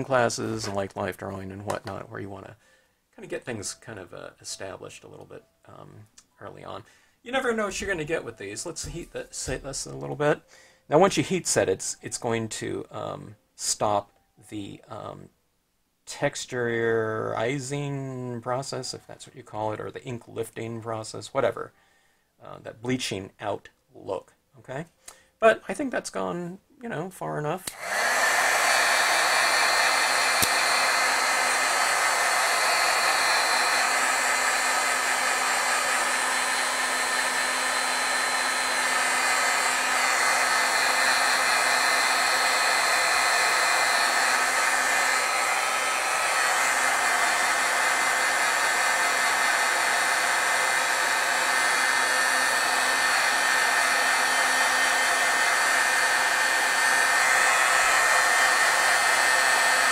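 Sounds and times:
heat gun blowing air: 0:00.0 - 0:00.8, 0:27.6 - 0:59.9.

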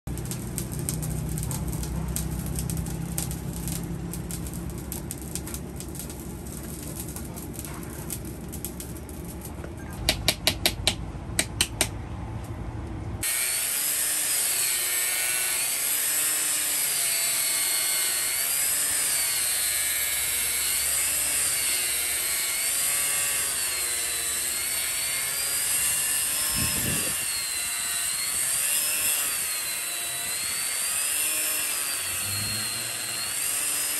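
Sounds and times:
angle grinder cutting steel: 0:13.2 - 0:33.9.

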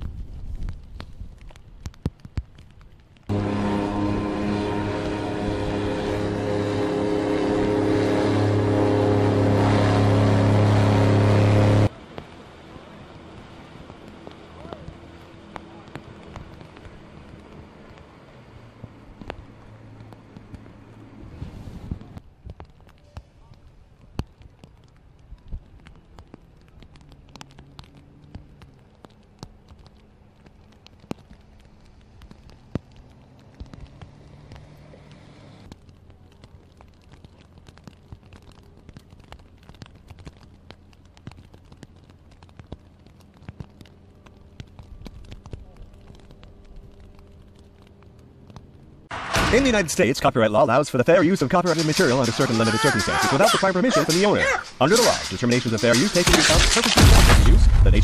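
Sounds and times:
low engine hum: 0:00.0 - 0:49.8
rain falling: 0:00.0 - 0:58.0
airboat engine drone: 0:03.3 - 0:22.2.

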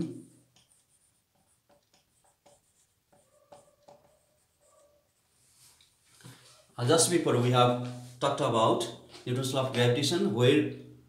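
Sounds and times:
marker pen writing on whiteboard: 0:00.0 - 0:06.7
marker squeaks: 0:00.6 - 0:05.2.

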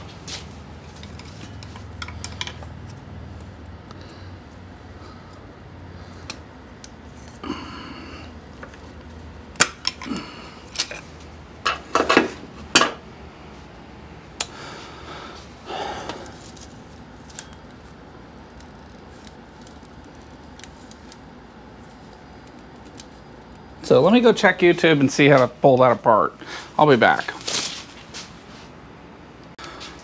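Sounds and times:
tools clicking and knocking: 0:01.0 - 0:03.0.

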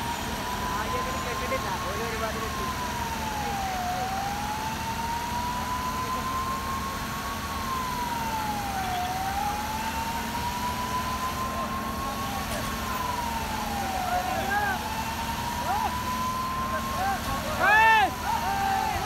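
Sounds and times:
fire engine siren wailing: 0:00.0 - 0:19.0.

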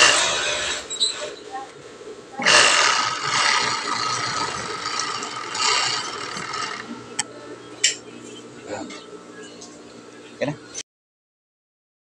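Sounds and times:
sewing machine whirring: 0:02.4 - 0:07.0.

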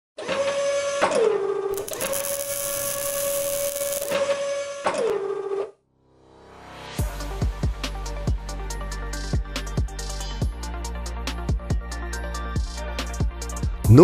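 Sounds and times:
robot arm servo whine: 0:01.7 - 0:04.8
loud hissing: 0:01.8 - 0:04.2.

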